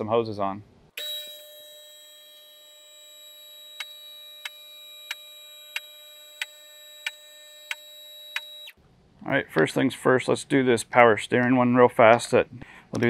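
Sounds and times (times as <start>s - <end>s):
vehicle lift power unit whine: 1.0s - 8.8s.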